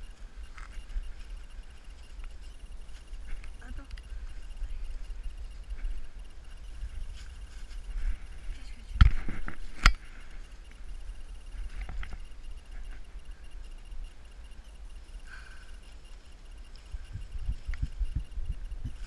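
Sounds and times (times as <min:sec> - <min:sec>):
wind rumble on microphone: 0:00.0 - 0:14.3, 0:16.2 - 0:19.0
rustling through vegetation: 0:00.0 - 0:19.0
microphone handling noise: 0:08.9 - 0:10.1.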